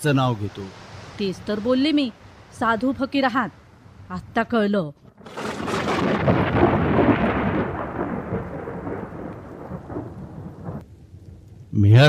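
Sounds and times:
thunder crack and rumble: 0:05.0 - 0:10.9.

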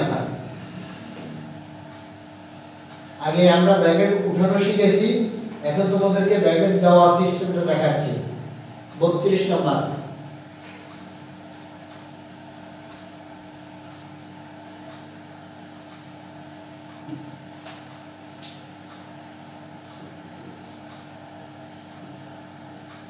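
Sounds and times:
steady background hum: 0:00.0 - 0:23.0
duster swishing on whiteboard: 0:10.7 - 0:15.1.

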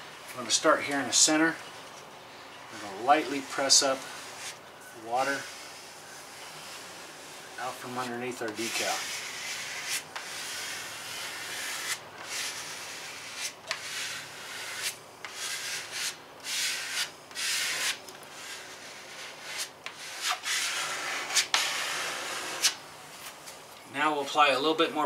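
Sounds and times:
plastic squeegee rubbing paper: 0:02.7 - 0:04.6, 0:05.2 - 0:22.8.

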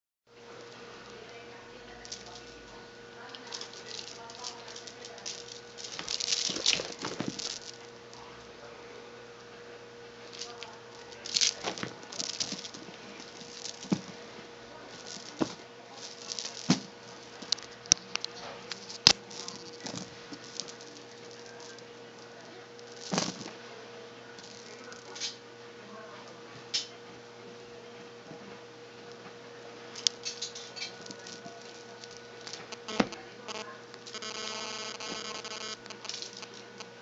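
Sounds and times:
faint steady hum: 0:00.3 - 0:37.0
cat scuffling and pouncing: 0:02.0 - 0:08.0, 0:10.3 - 0:23.6.

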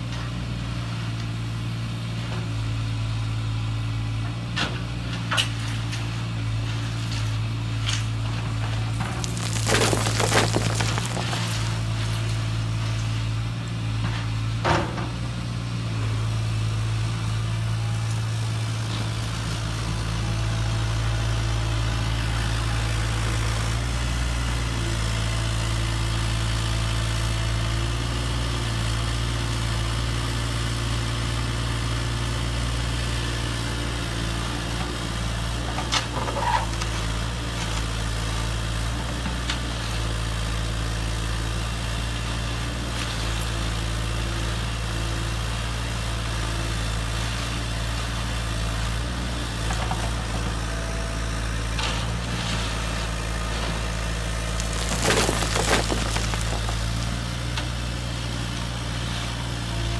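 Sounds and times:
stones clicking: 0:09.1 - 0:11.9, 0:54.5 - 0:57.2.

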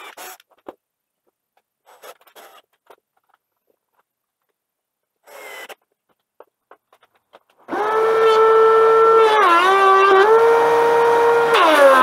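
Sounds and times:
cordless drill driving screws: 0:00.0 - 0:00.4, 0:05.2 - 0:05.8.

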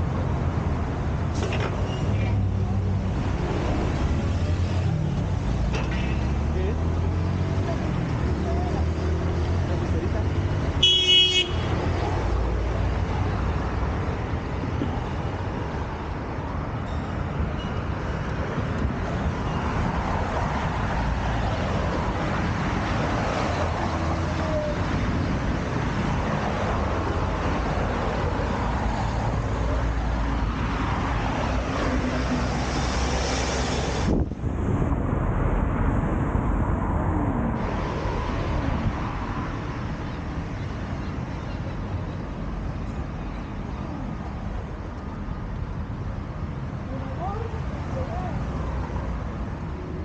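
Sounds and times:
road traffic passing: 0:00.0 - 0:50.0.

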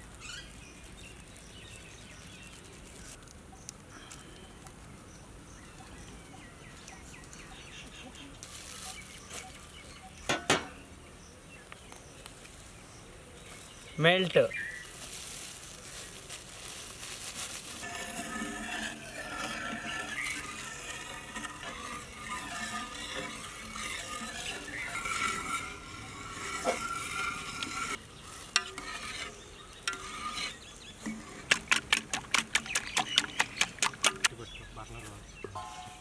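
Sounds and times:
whisk stirring wet batter: 0:17.8 - 0:28.0, 0:28.6 - 0:34.3
whisk clicking against metal pot: 0:28.6 - 0:34.3.

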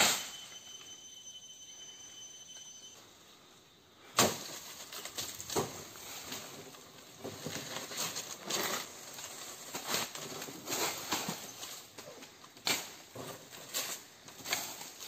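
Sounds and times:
dry palm fronds crackling: 0:04.2 - 0:15.0.

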